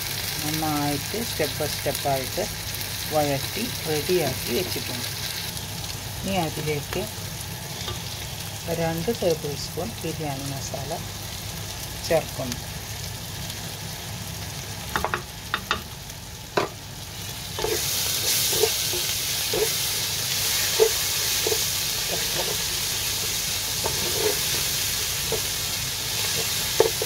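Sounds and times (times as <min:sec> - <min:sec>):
masala sizzling in a pot: 0:00.0 - 0:27.0
spatula scraping through mixture: 0:23.8 - 0:25.5.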